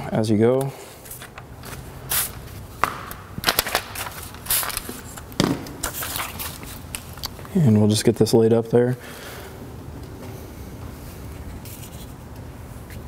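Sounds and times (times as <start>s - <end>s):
plastic film crinkling: 3.4s - 7.2s.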